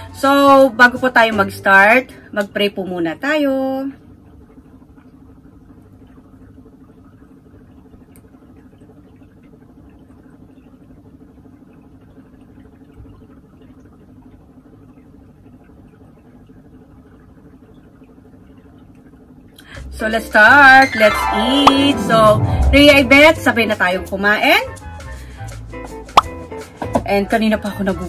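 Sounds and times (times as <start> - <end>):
steady low hum: 3.7 - 25.5.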